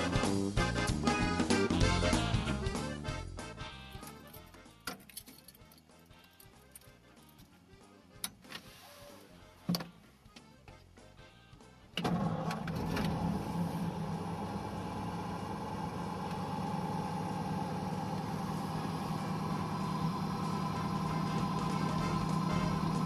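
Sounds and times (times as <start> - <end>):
car engine drone from inside cabin: 12.0 - 23.0.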